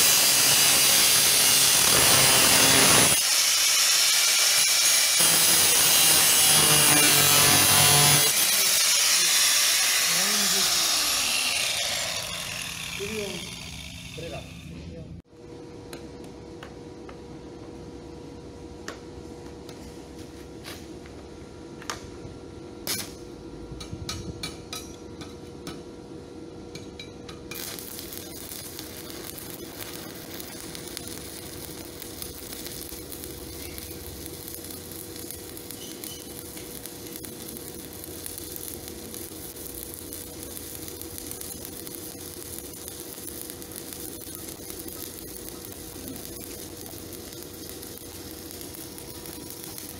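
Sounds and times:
welding arc crackling: 0:00.0 - 0:14.7, 0:27.5 - 0:49.9
steady hum: 0:10.0 - 0:49.9.

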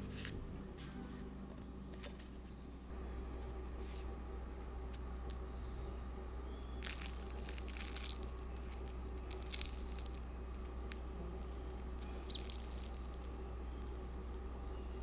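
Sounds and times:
steady low hum: 0:00.0 - 0:15.0
crisp crust crackling: 0:06.8 - 0:15.0.

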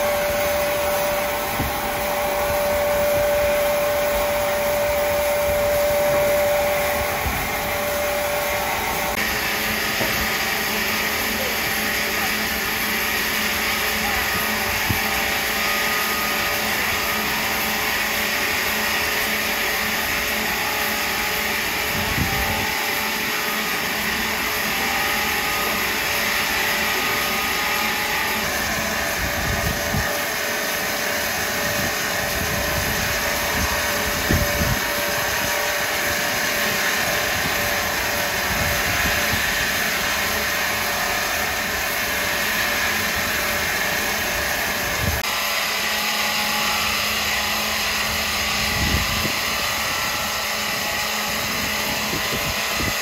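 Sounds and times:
power saw running: 0:00.0 - 0:53.0.

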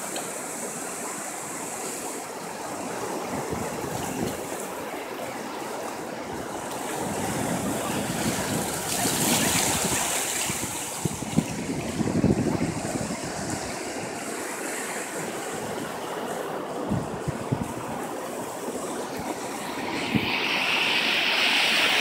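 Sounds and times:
ocean waves breaking: 0:00.0 - 0:22.0
wind on microphone: 0:03.1 - 0:04.6, 0:06.3 - 0:14.5, 0:15.1 - 0:22.0.

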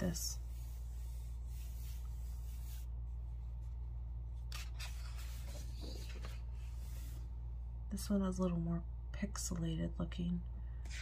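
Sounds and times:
steady low hum: 0:00.0 - 0:11.0
book page turning: 0:04.4 - 0:07.2.

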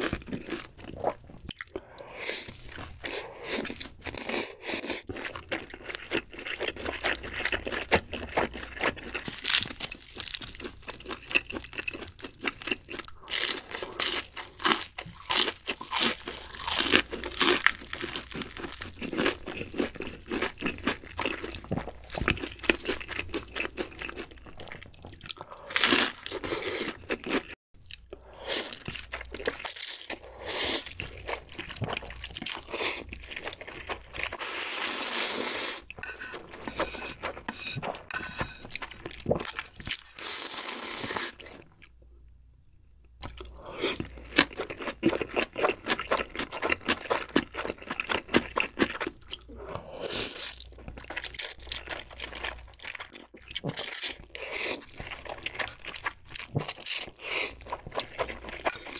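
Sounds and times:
crunching fried food: 0:02.6 - 0:28.1, 0:43.3 - 0:58.9
slurping noodles: 0:34.3 - 0:39.4, 0:40.1 - 0:41.4.

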